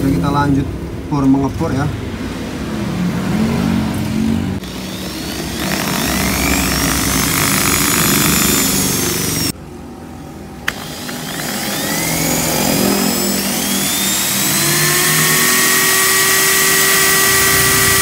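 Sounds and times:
drill bit squealing: 4.6 - 9.5, 10.7 - 18.0
electric drill boring into metal: 4.6 - 9.5, 10.7 - 18.0.

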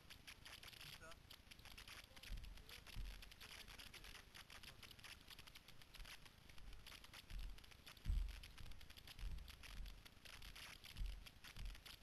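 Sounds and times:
faint crackling: 0.0 - 12.0
footsteps and handling thumps: 6.6 - 12.0.

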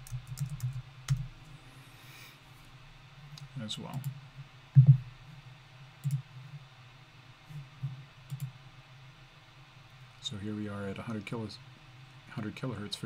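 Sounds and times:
low steady hum: 0.0 - 13.0
computer mouse clicks: 6.0 - 6.2, 8.3 - 8.6.

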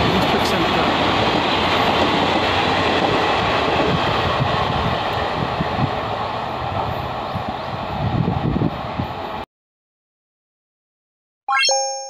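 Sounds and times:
train wheels rumbling on rails: 0.0 - 9.4.

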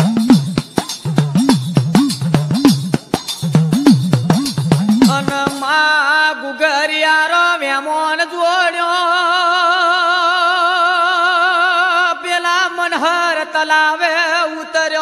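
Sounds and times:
person singing with vibrato: 4.3 - 15.0.

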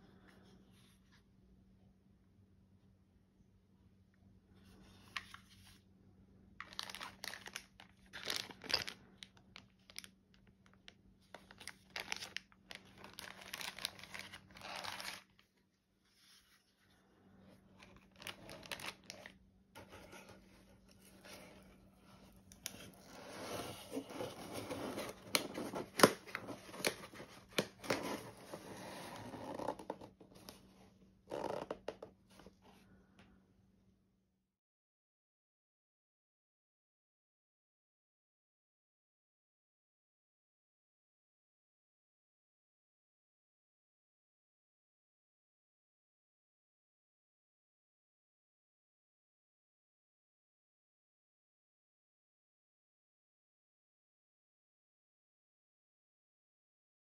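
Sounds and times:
plastic and paper crinkling: 6.6 - 16.6, 17.8 - 30.6
cardboard box rustling and scraping: 19.8 - 30.5.

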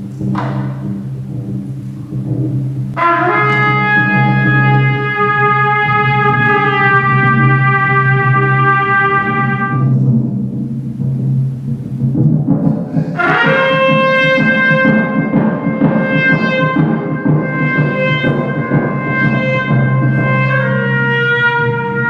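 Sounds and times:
low rumble of drums: 0.0 - 22.0
trumpet holding long note: 2.9 - 10.3, 13.0 - 22.0.

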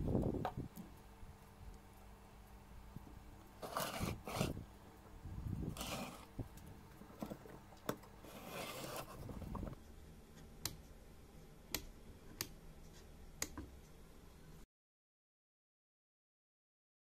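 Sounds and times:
wooden parts rubbing and scraping: 3.6 - 4.7, 5.6 - 9.8.

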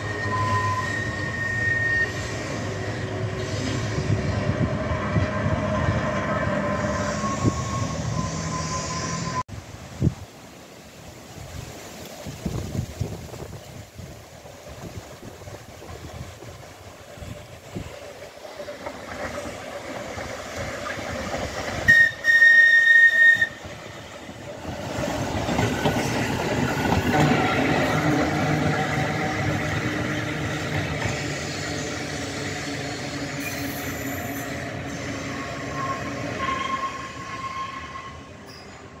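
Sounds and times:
tram whistle blast: 0.0 - 9.4, 21.8 - 23.8, 31.2 - 39.0
tram rumbling past: 0.0 - 10.2, 12.2 - 39.0.

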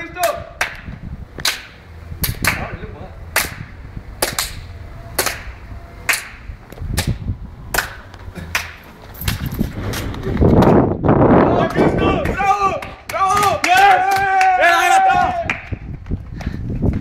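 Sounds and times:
sharp hand claps: 0.2 - 2.7, 3.3 - 9.4, 11.7 - 14.6, 15.4 - 15.8.

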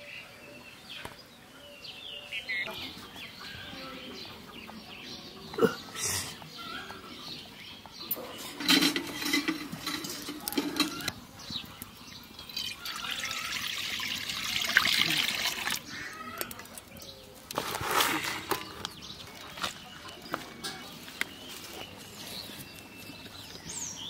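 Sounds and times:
knocks and handling sounds: 8.1 - 11.2
oil pouring into metal pan: 12.4 - 15.8.

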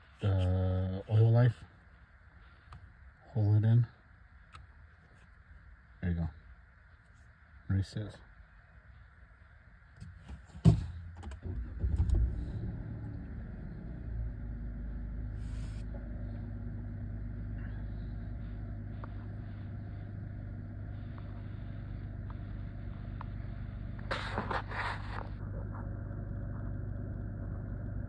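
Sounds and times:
car engine starting and idling: 10.6 - 28.0.

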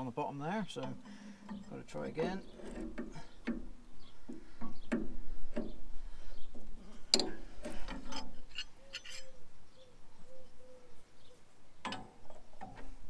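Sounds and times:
spanner clinking on metal: 7.1 - 9.4.

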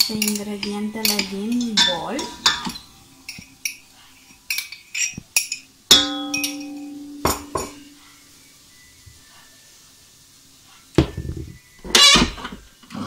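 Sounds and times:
glass tapping metal bowl: 5.0 - 8.0
plucked note ringing: 5.9 - 8.0.

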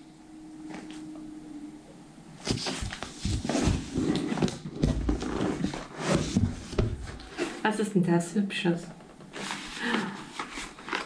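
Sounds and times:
packaging crinkling and rustling: 9.2 - 11.0.

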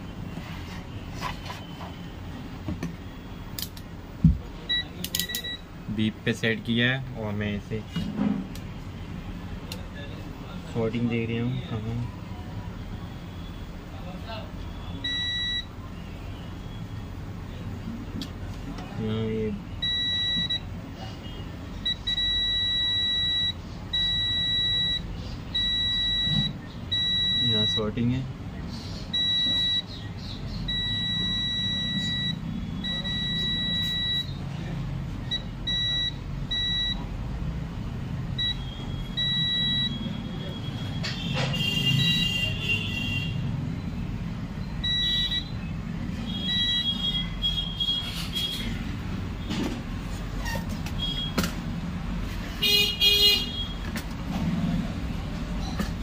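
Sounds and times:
multimeter high-pitched beep: 14.8 - 15.7, 19.8 - 20.7, 21.8 - 28.0, 29.1 - 30.0, 30.7 - 34.4, 35.3 - 37.0, 38.4 - 41.0, 44.8 - 45.7, 46.3 - 47.3.

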